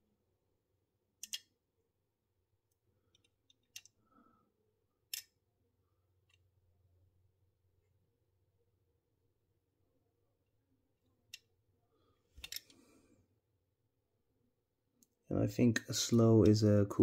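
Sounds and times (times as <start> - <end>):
toy model clicks and taps: 1.2 - 1.5.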